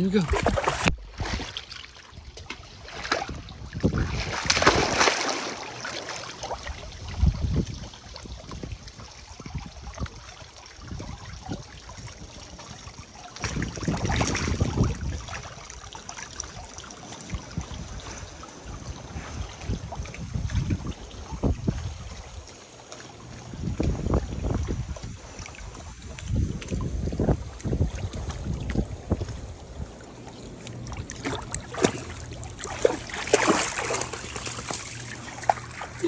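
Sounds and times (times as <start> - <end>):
water splashing and sloshing: 0.0 - 36.0.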